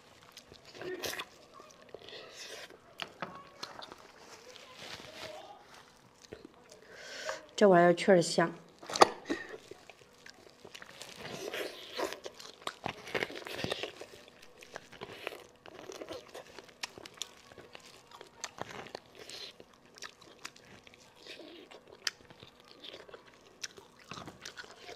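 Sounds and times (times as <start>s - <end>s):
bones cracking and crunching: 0.0s - 6.9s, 8.7s - 24.9s
chewing and biting: 0.0s - 7.6s, 8.7s - 24.9s
plastic gloves crinkling: 0.0s - 7.6s, 8.2s - 24.9s.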